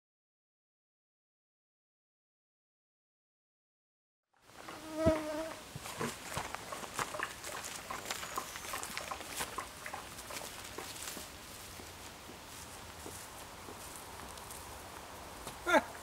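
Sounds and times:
insect buzzing past: 0:04.5 - 0:06.1.

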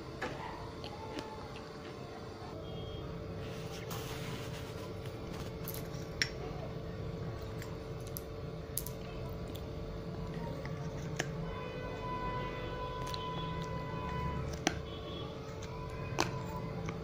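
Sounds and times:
low steady hum: 0:00.0 - 0:17.0
clay being chewed crunching: 0:07.4 - 0:11.4, 0:12.9 - 0:17.0.

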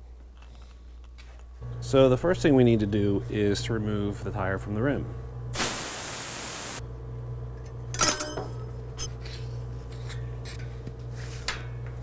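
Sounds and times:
air hissing from tire valve: 0:05.6 - 0:06.8
metal clank with ring: 0:07.9 - 0:09.1.

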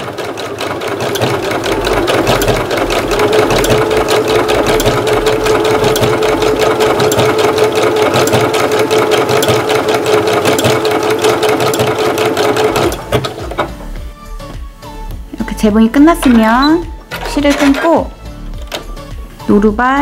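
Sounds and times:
sewing machine motor whine: 0:00.0 - 0:13.3
sewing machine needle ticking: 0:00.1 - 0:13.2.

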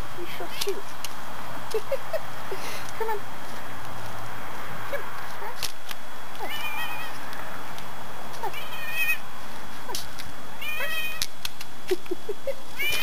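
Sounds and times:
cat meowing: 0:06.4 - 0:07.2, 0:08.5 - 0:09.2, 0:10.6 - 0:11.2, 0:12.8 - 0:13.0.

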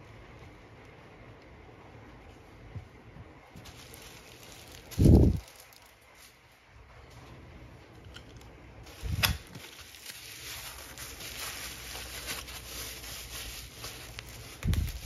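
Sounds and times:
bubble wrap crinkling: 0:03.5 - 0:06.6, 0:08.1 - 0:15.0.

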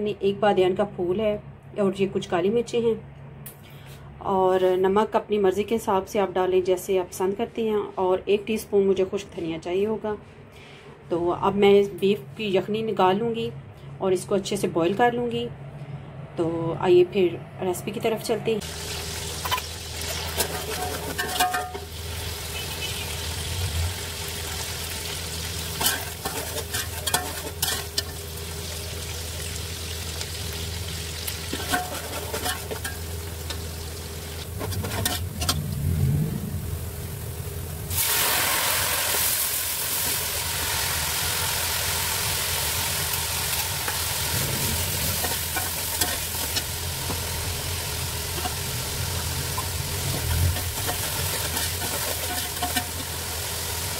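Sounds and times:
onions sizzling in oil: 0:18.6 - 0:53.9
metal spoon scraping a pot: 0:20.3 - 0:21.8, 0:25.8 - 0:28.1, 0:31.5 - 0:33.0, 0:34.5 - 0:35.6, 0:49.5 - 0:53.0.

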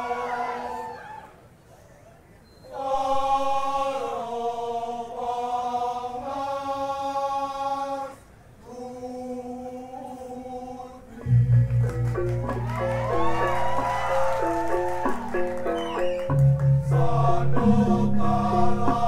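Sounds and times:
voices chanting in unison: 0:00.0 - 0:01.0, 0:02.7 - 0:11.5, 0:16.8 - 0:19.0.

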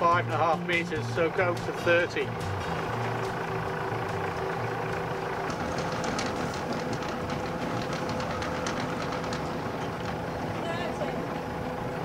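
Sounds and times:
boat engine running: 0:00.0 - 0:12.0
anchor chain rattling out: 0:05.3 - 0:11.0.

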